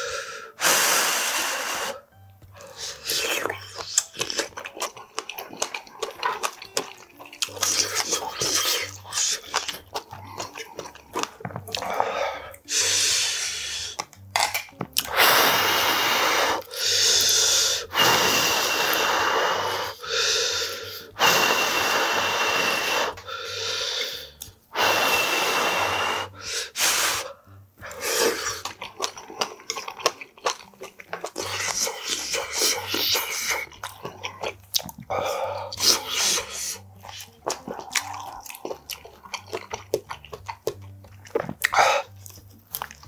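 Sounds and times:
person slurping noodles: 0.0 - 2.0, 2.6 - 14.0, 15.0 - 27.3, 27.9 - 30.0, 31.2 - 40.2
wet chewing and smacking: 2.4 - 12.8, 13.8 - 15.2, 27.5 - 43.0.

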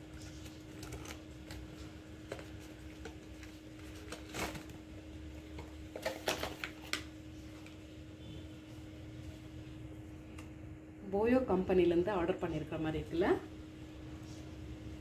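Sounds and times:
cardboard and packaging crinkles: 0.0 - 7.8
steady low hum: 0.0 - 15.0.

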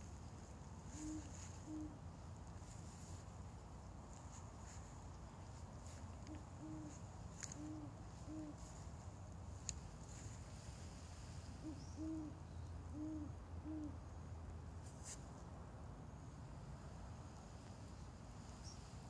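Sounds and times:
owl hooting: 0.8 - 2.0, 6.2 - 8.8, 11.6 - 14.0.

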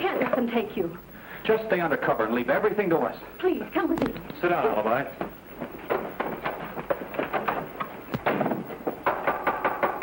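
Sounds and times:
boots and furniture clattering: 4.0 - 9.9.

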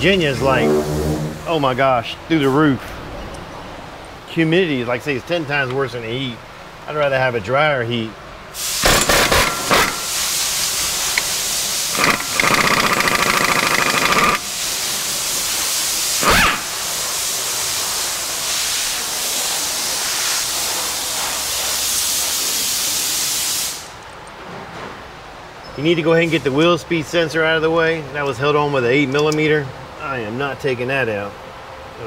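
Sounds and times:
exhaust air hissing: 0.0 - 3.0, 8.5 - 24.0
pneumatic impact wrench hammering: 8.6 - 14.8, 15.7 - 16.9.

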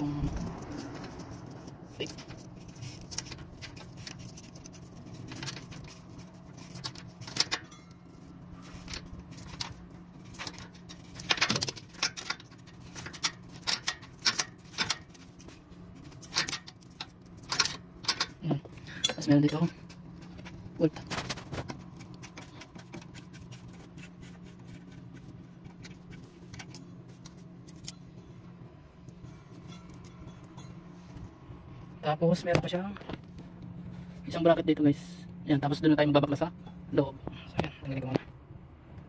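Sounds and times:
metal clips clicking and rattling: 2.0 - 23.6.

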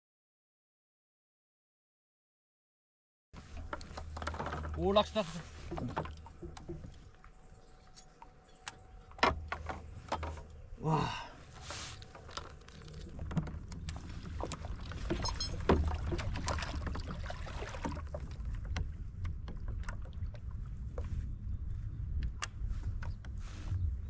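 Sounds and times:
small knocks and clicks: 5.6 - 10.7.

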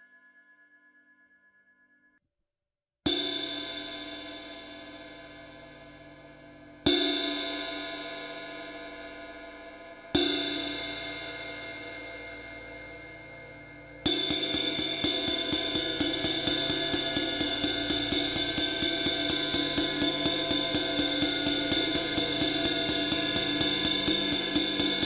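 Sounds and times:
ride cymbal ringing: 14.3 - 25.0.

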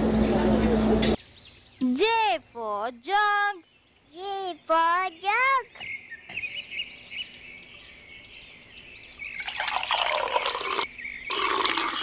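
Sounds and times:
faint birdsong chirps: 1.2 - 12.0
liquid pouring: 9.2 - 12.0.

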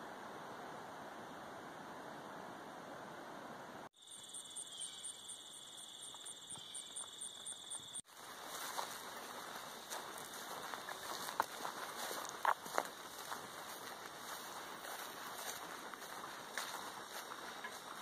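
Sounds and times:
insect pulsing chirp: 4.0 - 11.5
insects buzzing: 4.0 - 18.0
soft footsteps: 6.1 - 18.0.

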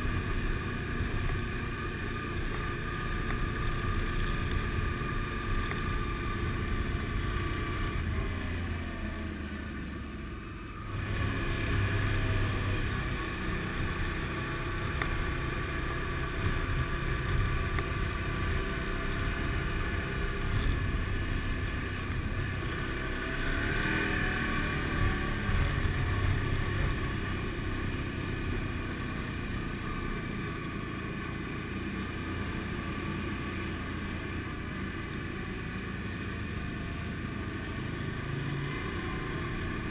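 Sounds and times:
motorbike engine running: 0.0 - 39.9.

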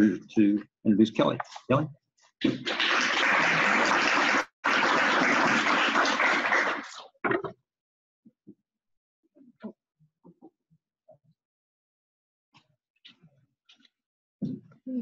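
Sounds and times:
audience applauding: 2.6 - 7.1.

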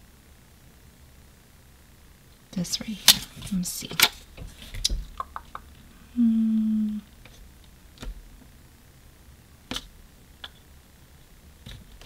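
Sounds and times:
woman humming: 6.0 - 7.1.

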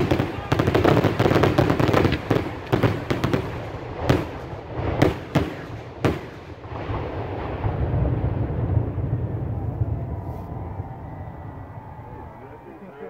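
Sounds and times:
loud bangs with rolling echo: 0.0 - 9.5.

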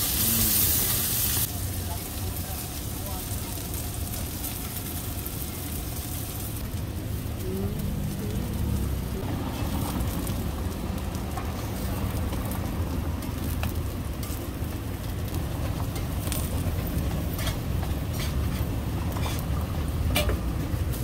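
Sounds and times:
patties sizzling on a griddle: 0.0 - 21.0
low rumble: 6.5 - 18.1.

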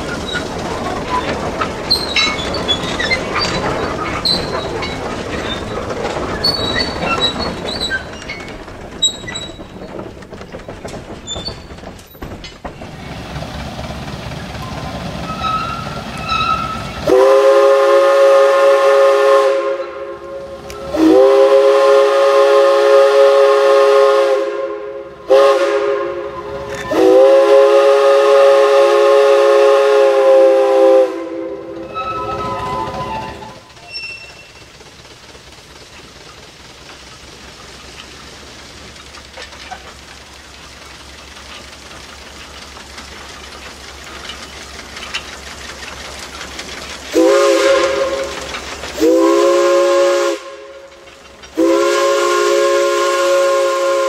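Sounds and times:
train wheels clicking over rail joints: 0.0 - 54.0
steam whistle blasts: 15.3 - 34.3, 47.2 - 48.4, 49.0 - 50.9, 51.6 - 54.0.

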